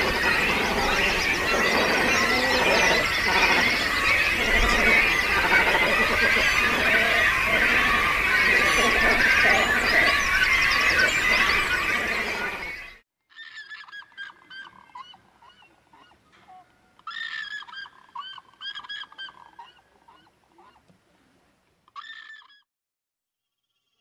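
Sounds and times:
cormorants calling: 0.0 - 20.8, 21.9 - 22.6
dense chorus of bird calls: 0.0 - 20.8.

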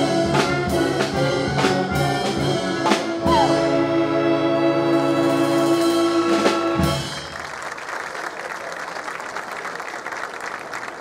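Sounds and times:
wind band brass chord: 0.0 - 7.3
audience applause: 7.0 - 11.0.

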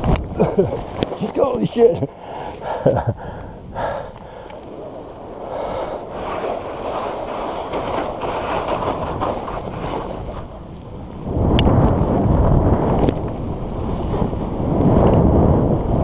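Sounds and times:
wind rumble on microphone: 0.0 - 16.0
skis hissing through snow: 4.6 - 11.2, 13.3 - 14.7.

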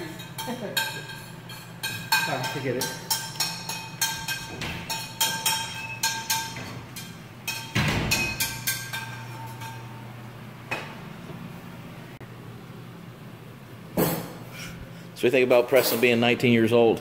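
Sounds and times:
dishes and utensils clinking: 0.0 - 11.0.

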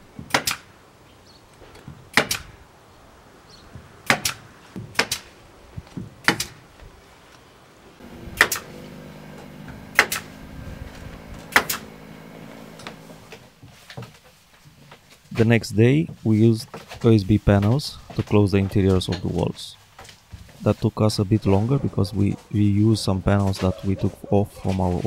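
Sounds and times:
steady low hum: 8.0 - 13.6
pneumatic staple gun firing: 8.4 - 8.7, 11.5 - 11.8.

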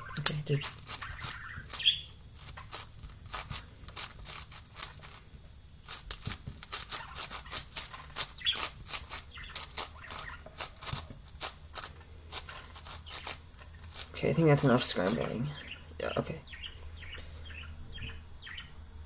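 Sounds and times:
budgie chirping: 0.0 - 18.9.

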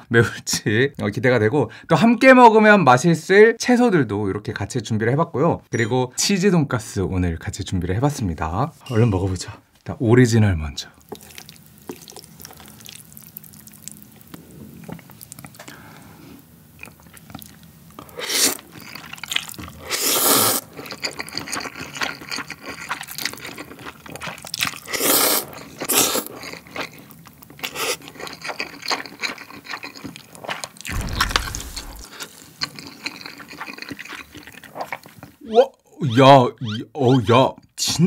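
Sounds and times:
wet chewing and lip-smacking: 11.0 - 15.7, 16.8 - 19.8, 20.6 - 32.0, 32.6 - 35.4
slurping noodles: 18.0 - 21.6, 24.8 - 26.4.

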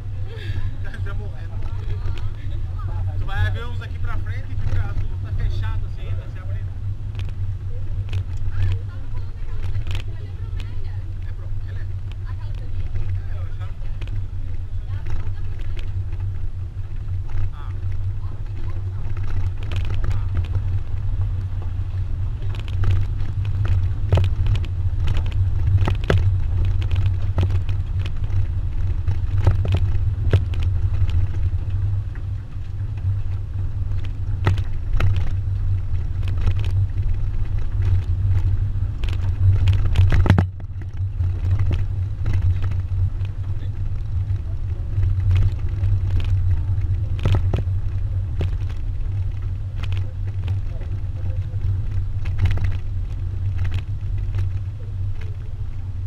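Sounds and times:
engine and tyre rumble: 0.0 - 56.0
knocks over bumps: 14.9 - 56.0.

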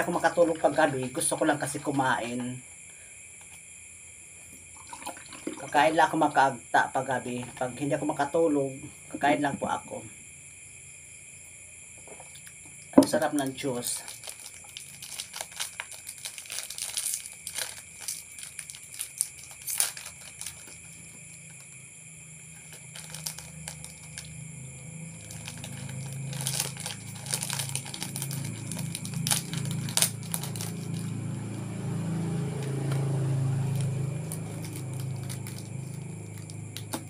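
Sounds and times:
plastic wrapper crinkling and tearing: 14.0 - 21.7, 22.5 - 24.3, 25.1 - 31.3, 33.6 - 37.0
low hum: 23.9 - 37.0.

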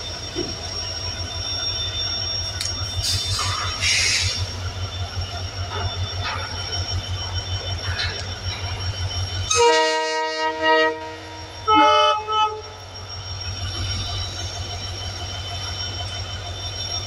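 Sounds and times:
train horn blasts: 9.5 - 12.7.

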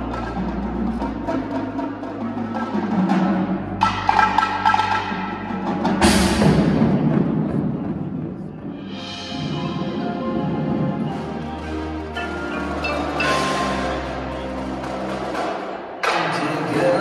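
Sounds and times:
drum strokes: 0.0 - 16.8
marimba and vibraphone chords: 8.9 - 15.4.

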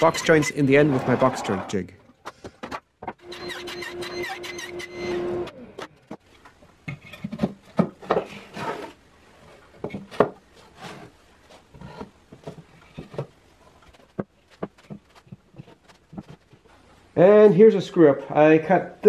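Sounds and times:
wooden knocks and clunks: 6.0 - 8.4, 9.7 - 16.6
wood rubbing scrapes: 8.0 - 17.0.

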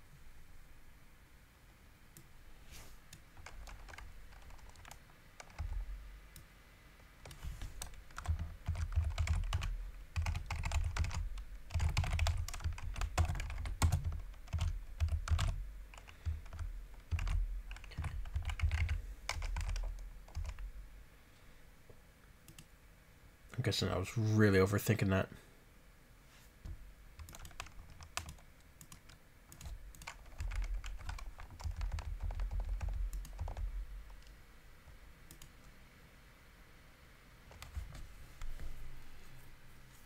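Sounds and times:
typing on computer keyboard: 3.1 - 5.8, 7.2 - 20.7, 27.2 - 34.3, 37.5 - 38.0.

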